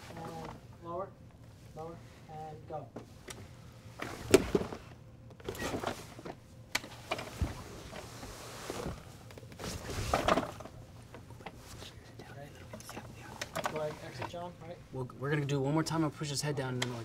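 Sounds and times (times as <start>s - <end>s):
rustling against fabric partition: 3.0s - 12.1s
thumps against fabric partition: 4.0s - 4.9s.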